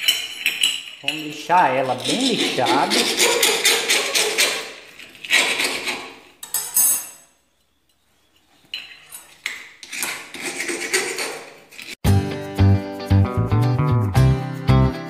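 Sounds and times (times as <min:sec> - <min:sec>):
file rasping on metal: 0:01.1 - 0:06.4, 0:09.8 - 0:12.0.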